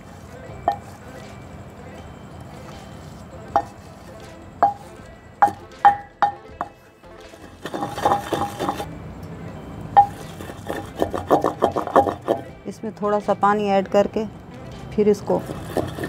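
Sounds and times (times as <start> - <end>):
wooden pestle pounding in mortar: 3.6 - 4.0, 4.6 - 6.8, 7.4 - 8.9, 10.0 - 12.5, 15.4 - 16.0
grinding in mortar: 7.3 - 8.9, 10.0 - 12.5, 15.4 - 16.0.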